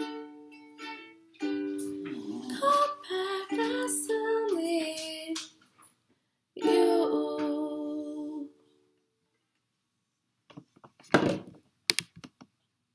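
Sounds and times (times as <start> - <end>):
ukulele chord ringing: 0.0 - 4.8, 6.6 - 8.5.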